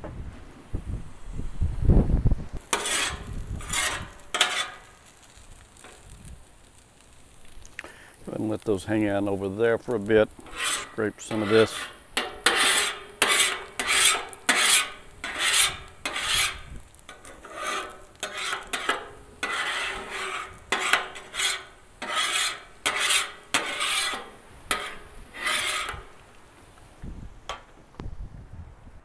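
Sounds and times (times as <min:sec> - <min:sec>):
metal spatula scraping griddle: 0:02.7 - 0:07.4, 0:08.2 - 0:26.4.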